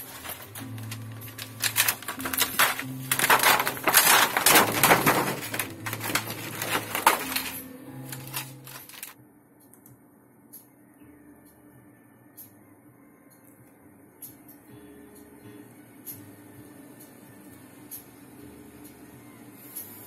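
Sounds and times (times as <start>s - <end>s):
plastic sheet crinkling: 0.0s - 9.2s.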